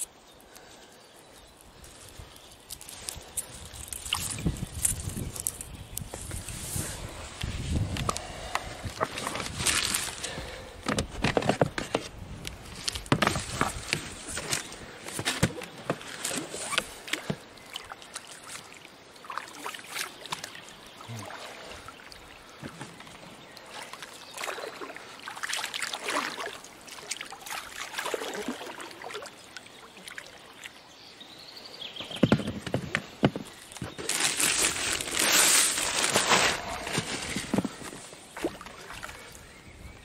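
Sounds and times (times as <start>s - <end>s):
water trickling off oars: 0.0s - 39.5s
oars splashing in water: 12.8s - 30.8s, 32.0s - 39.4s.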